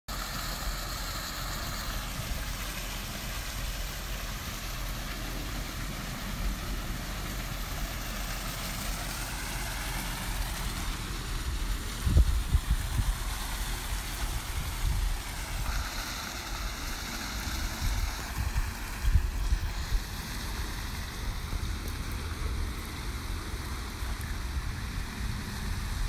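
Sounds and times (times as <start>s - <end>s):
waterfall splashing into pool: 0.1s - 26.0s.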